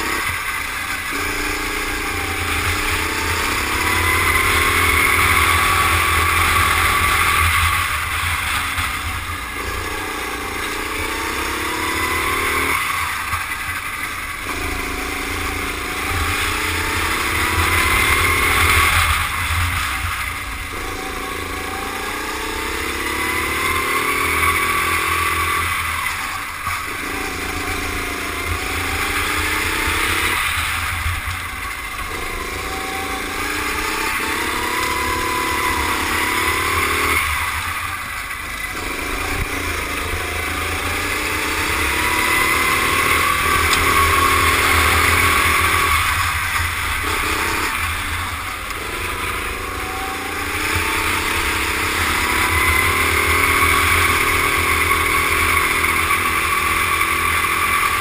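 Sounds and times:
go-kart engine racing: 0:00.0 - 0:58.0.

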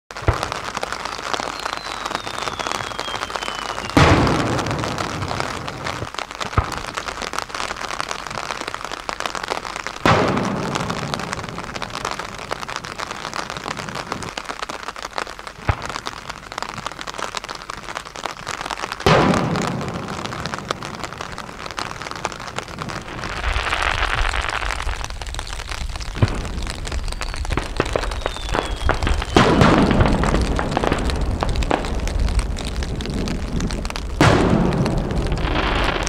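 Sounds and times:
sharp firework bangs: 0:00.1 - 0:07.0, 0:10.0 - 0:11.6, 0:19.0 - 0:36.0
firework booms: 0:00.1 - 0:08.6, 0:10.0 - 0:14.3, 0:19.0 - 0:36.0
firework crackle: 0:00.1 - 0:36.0
firework falling whistle: 0:00.2 - 0:05.1, 0:22.8 - 0:31.0.

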